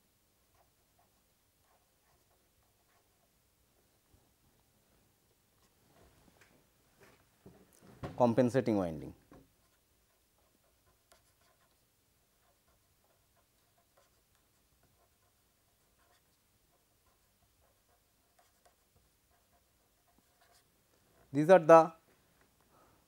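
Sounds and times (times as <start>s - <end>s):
pen scratching on paper: 0.4s - 3.4s, 9.4s - 21.3s.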